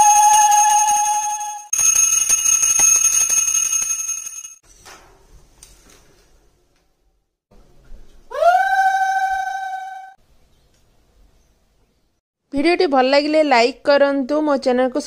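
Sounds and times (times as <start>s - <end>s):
small hand bell ringing: 0.5s - 4.6s.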